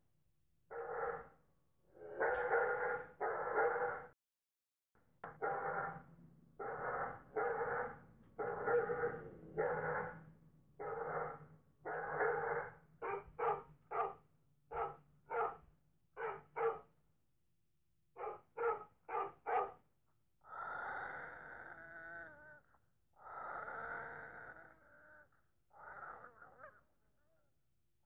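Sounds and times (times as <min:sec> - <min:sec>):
dog growling: 0:01.9 - 0:04.2, 0:05.3 - 0:06.0, 0:06.6 - 0:15.6, 0:16.2 - 0:16.8, 0:20.4 - 0:27.5
dog barking: 0:02.0 - 0:04.1, 0:05.3 - 0:05.9, 0:06.6 - 0:10.2, 0:10.8 - 0:16.9, 0:18.2 - 0:19.8, 0:25.8 - 0:26.9.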